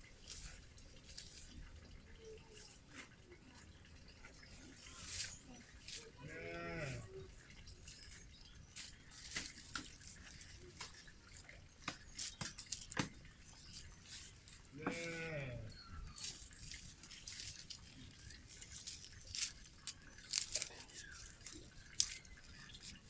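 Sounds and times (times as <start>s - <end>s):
animal bleating: 6.2s - 7.1s, 14.7s - 15.8s
dry twigs snapping: 11.8s - 13.2s, 16.2s - 23.0s.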